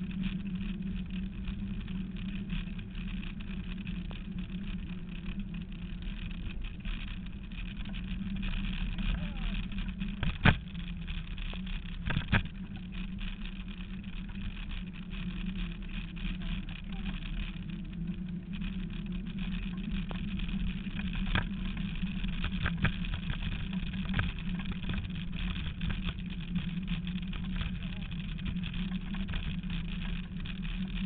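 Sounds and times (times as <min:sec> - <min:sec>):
scooter wheels rumbling and rattling: 0:00.0 - 0:31.0.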